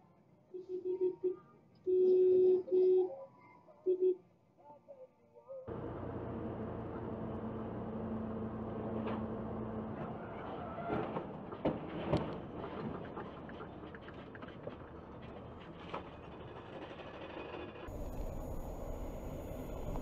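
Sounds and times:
road and engine noise: 5.7 - 20.0.

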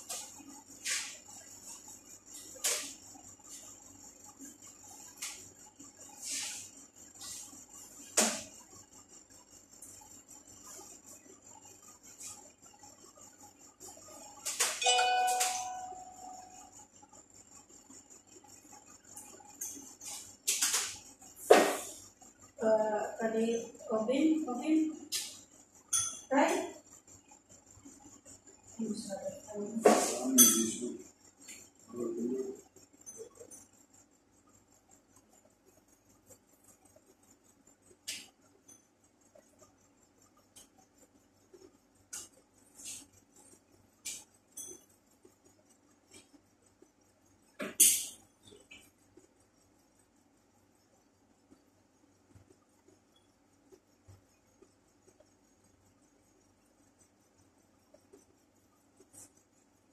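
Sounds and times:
utensil clinking on a dish: 30.1 - 30.9.

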